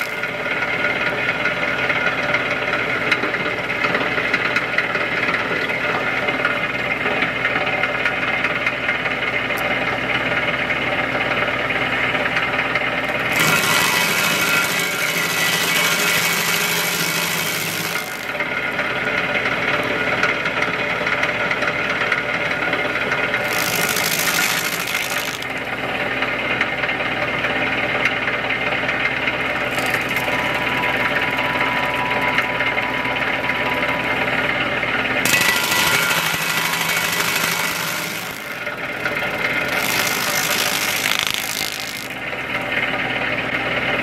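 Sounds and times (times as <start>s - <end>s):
grinder wheel grinding wood: 0.0s - 1.6s, 13.0s - 20.9s, 22.7s - 26.4s, 29.2s - 43.0s
diesel engine running: 9.3s - 44.0s.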